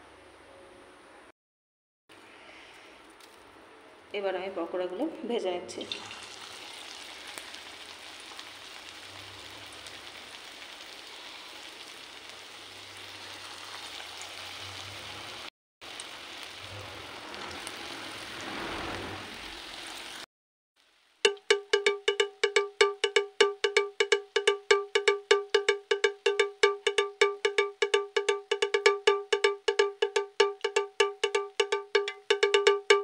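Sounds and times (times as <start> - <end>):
batter sizzling in hot oil: 5.8 - 21.4.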